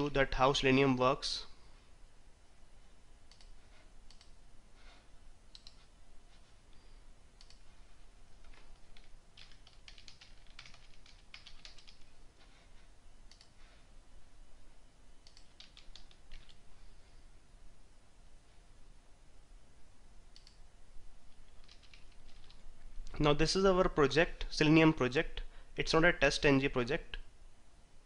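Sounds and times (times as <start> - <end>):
typing on computer keyboard: 8.4 - 12.2, 15.2 - 16.6, 21.5 - 22.6.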